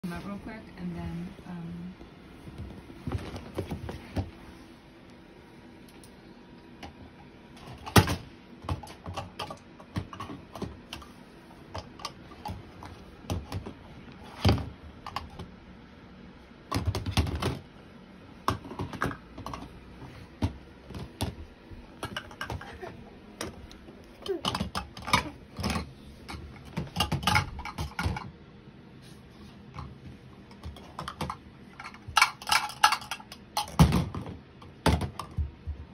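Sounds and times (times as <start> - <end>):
plastic cups clattering: 20.4 - 28.3, 30.6 - 34.2.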